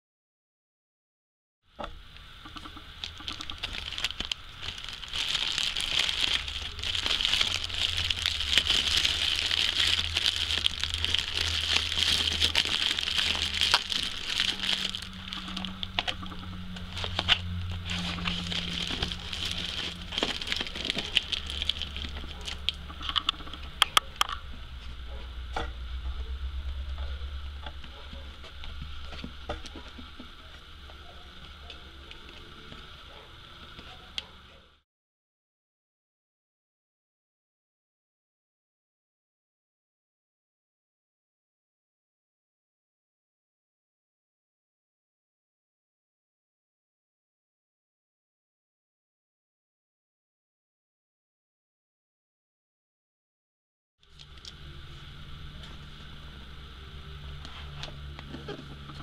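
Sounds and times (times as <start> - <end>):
packing material crinkling: 3.0 - 23.5.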